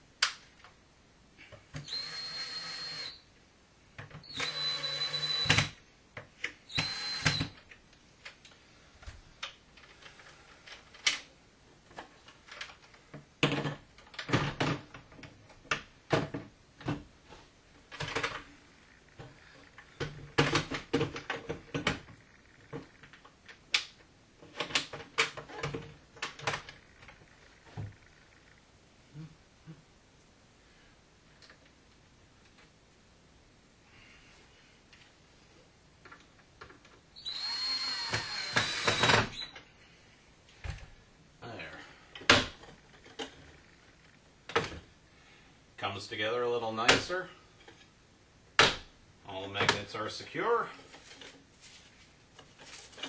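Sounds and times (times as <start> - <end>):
cordless drill whining: 1.8 - 3.2, 4.2 - 5.8, 6.7 - 7.6, 37.2 - 39.6.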